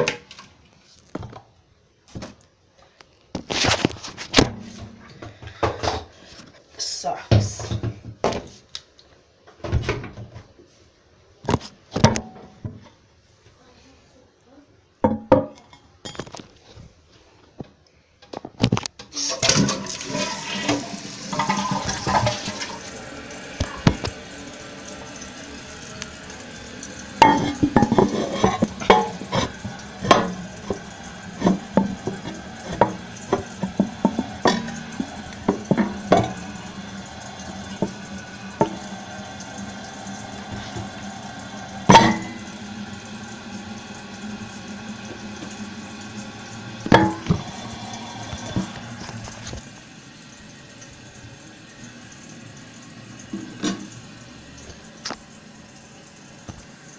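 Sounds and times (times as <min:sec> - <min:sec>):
toilet flushing: 0:19.0 - 0:56.9
toilet tank refilling hiss: 0:19.1 - 0:56.9.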